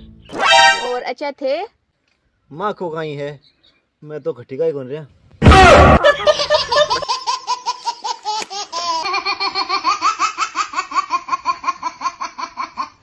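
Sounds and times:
babies laughing: 6.0 - 13.0.

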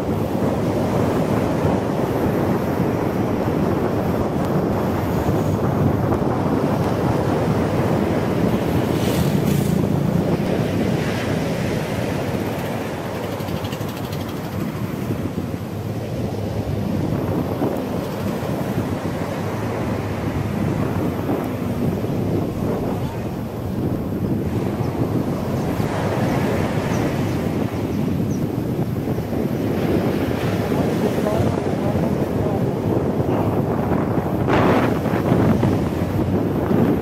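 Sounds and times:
wind buffeting microphone: 0.0 - 37.0
motorcycle engine running: 11.4 - 15.2.

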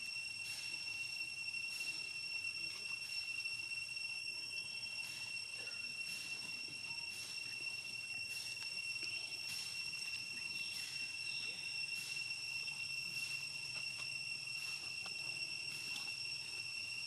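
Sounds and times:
insects droning: 0.0 - 17.0.

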